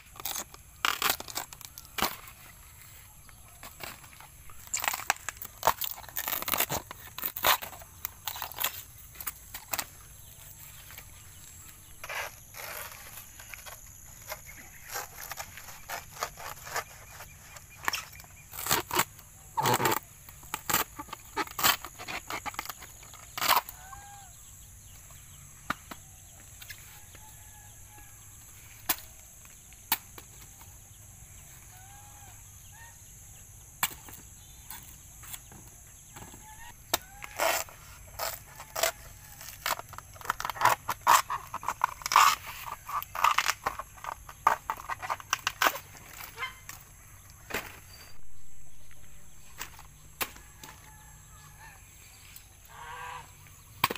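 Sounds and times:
fibres tearing and snapping: 0:00.0 - 0:02.3, 0:03.6 - 0:09.9, 0:14.3 - 0:24.1, 0:36.9 - 0:46.8.

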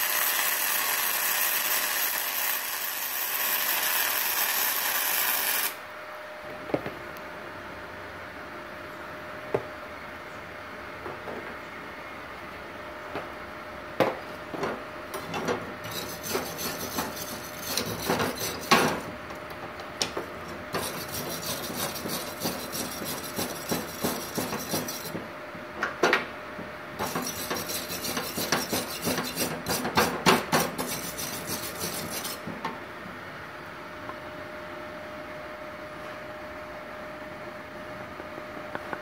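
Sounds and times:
wire brush scrubbing metal plate: 0:15.2 - 0:19.1, 0:20.4 - 0:25.3, 0:27.0 - 0:32.6.

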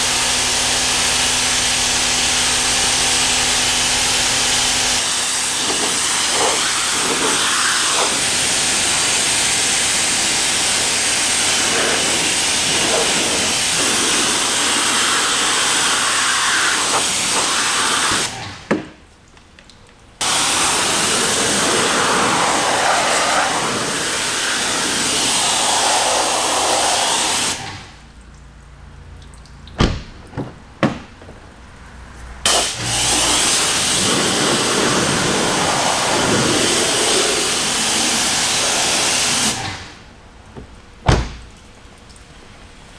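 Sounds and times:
pressure washer spraying water: 0:00.0 - 0:18.4, 0:20.2 - 0:27.7, 0:32.4 - 0:39.8.

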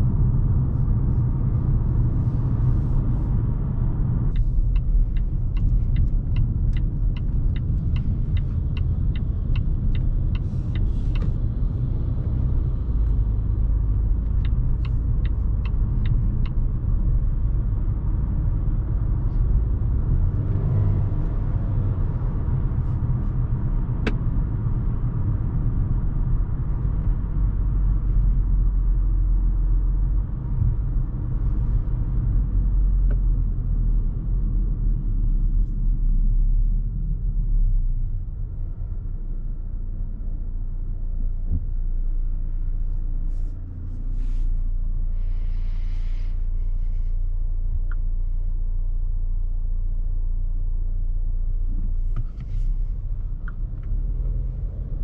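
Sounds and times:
tyres on the road: 0:00.0 - 0:50.9, 0:51.5 - 0:55.0
car engine rumble: 0:00.0 - 0:55.0
regular ticking: 0:04.3 - 0:11.4, 0:13.1 - 0:16.6.

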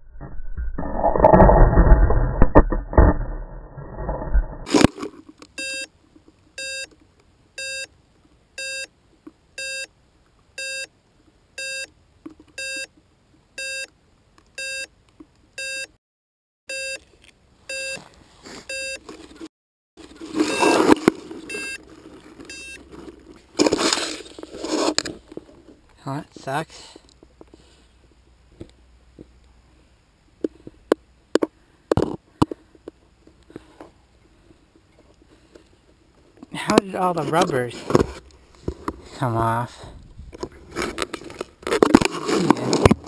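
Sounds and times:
short electronic beeps: 0:07.6 - 0:07.9, 0:08.6 - 0:08.9, 0:09.6 - 0:09.9, 0:10.6 - 0:10.9, 0:11.6 - 0:11.9, 0:12.6 - 0:12.9, 0:13.6 - 0:13.9, 0:14.6 - 0:14.9, 0:15.6 - 0:15.9, 0:16.7 - 0:17.0, 0:17.7 - 0:18.0, 0:18.7 - 0:19.0, 0:21.5 - 0:21.8, 0:22.5 - 0:22.8.

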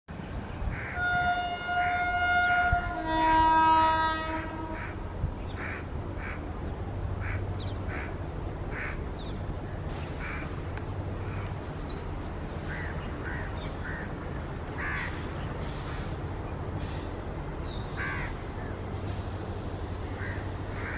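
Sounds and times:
train low rumble: 0:00.1 - 0:20.9
locomotive horn two-note blast: 0:00.9 - 0:05.0
crows cawing: 0:05.6 - 0:06.4, 0:07.2 - 0:09.0, 0:10.2 - 0:10.5, 0:12.7 - 0:14.1, 0:14.8 - 0:16.2, 0:18.0 - 0:18.4, 0:20.2 - 0:20.9.

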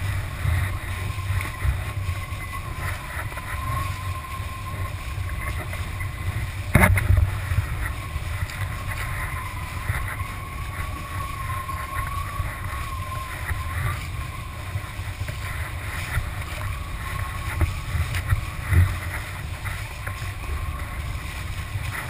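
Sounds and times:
thin whistle: 0:00.0 - 0:06.4, 0:07.6 - 0:22.0
rushing water: 0:00.0 - 0:22.0
wind buffeting camera: 0:00.0 - 0:22.0.

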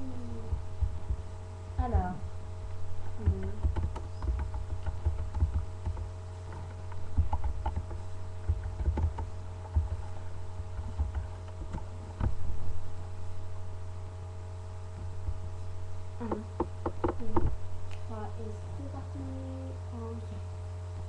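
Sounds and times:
low electrical hum: 0:00.0 - 0:21.0
soft knocks and thumps: 0:03.2 - 0:12.4, 0:16.2 - 0:17.6.

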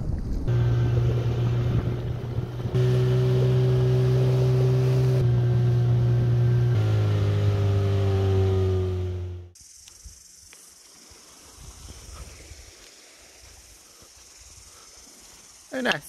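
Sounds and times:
outboard motor running: 0:00.5 - 0:09.6.

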